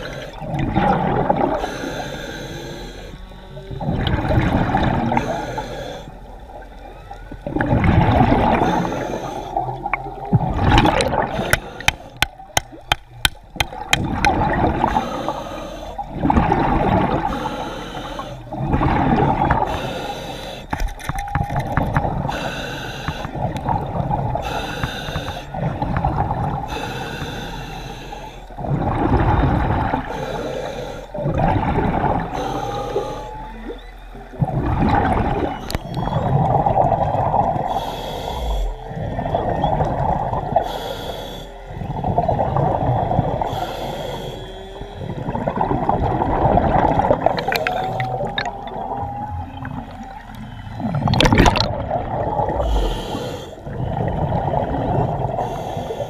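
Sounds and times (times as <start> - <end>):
heavy breathing through snorkel: 1.5 - 3.6, 4.8 - 6.2, 8.5 - 9.7, 11.0 - 12.4, 14.8 - 16.1, 17.2 - 18.5, 19.6 - 21.0, 22.2 - 23.6, 24.3 - 25.8, 26.6 - 28.6, 30.0 - 31.2, 32.2 - 33.5, 37.6 - 39.0, 40.5 - 41.9, 43.3 - 45.2, 47.1 - 48.8, 52.5 - 53.8, 55.3 - 56.0
water sloshing: 6.5 - 17.5, 44.3 - 55.5.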